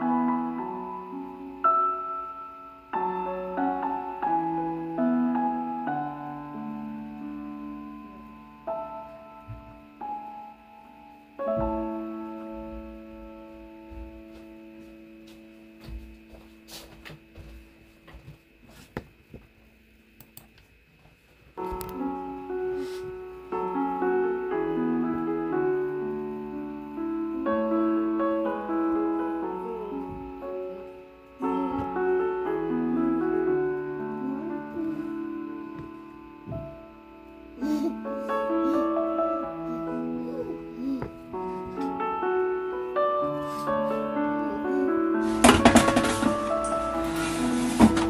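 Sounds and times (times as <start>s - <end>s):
soft piano chords: 0.0s - 20.9s, 21.5s - 48.0s.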